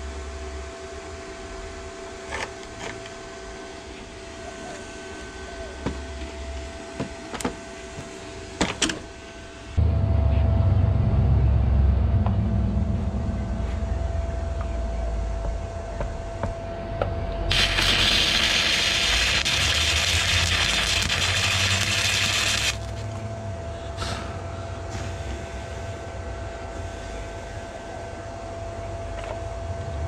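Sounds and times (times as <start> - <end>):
low hum: 9.2 - 30.0
welding arc crackling: 17.5 - 23.0.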